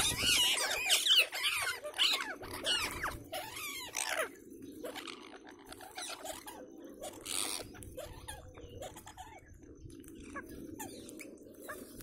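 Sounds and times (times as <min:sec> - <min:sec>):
parakeet screech: 0:00.0 - 0:04.3
parakeets chirping: 0:00.0 - 0:12.0.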